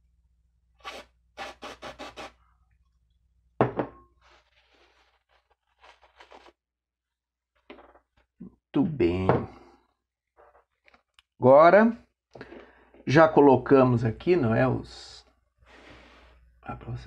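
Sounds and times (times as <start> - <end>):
aerosol can hissing squirts: 0.8 - 2.3
metal can knocking on wooden table: 3.6 - 4.0
tissue rubbing and scratching: 4.2 - 6.6.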